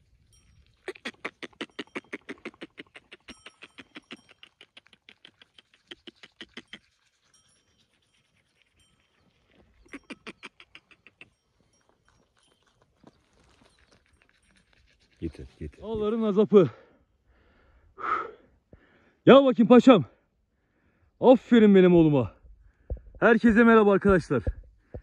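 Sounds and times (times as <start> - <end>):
sheep licking salt: 0.6 - 16.1.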